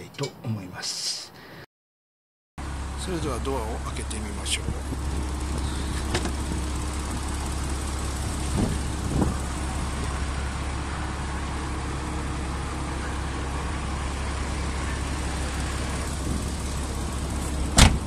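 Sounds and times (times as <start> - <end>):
low rumble: 3.0 - 18.0
car door thumps: 4.9 - 7.3, 8.5 - 9.3, 17.7 - 18.0
car door latch click: 17.8 - 18.0.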